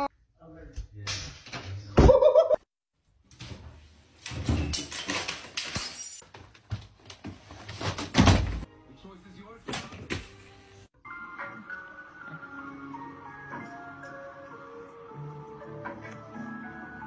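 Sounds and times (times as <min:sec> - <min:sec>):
household objects clattering: 0:03.4 - 0:08.7.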